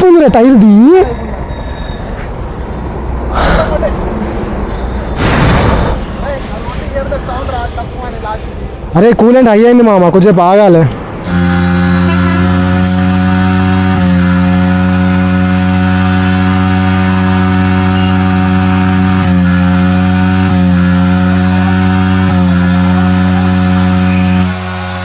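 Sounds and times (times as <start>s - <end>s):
motorcycle engine at high revs: 11.2s - 25.0s.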